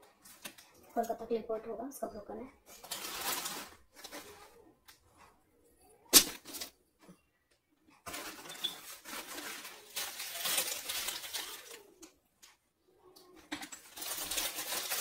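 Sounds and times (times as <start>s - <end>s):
rustling and scraping packaging: 0.0s - 1.2s, 2.7s - 5.4s, 6.1s - 7.2s, 7.9s - 12.6s, 13.4s - 15.0s.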